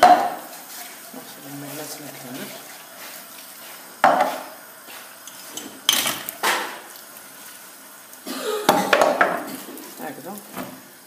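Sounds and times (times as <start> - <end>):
dishes and utensils clattering: 5.3 - 6.7, 8.5 - 9.9.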